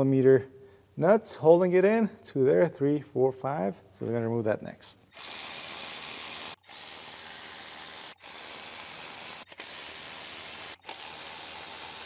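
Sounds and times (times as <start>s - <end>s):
cordless ratchet whirring: 5.1s - 12.0s.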